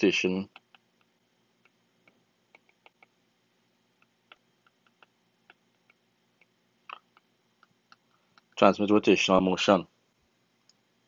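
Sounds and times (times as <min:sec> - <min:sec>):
stylus tapping on pen tablet: 0:00.5 - 0:03.2, 0:04.0 - 0:06.5.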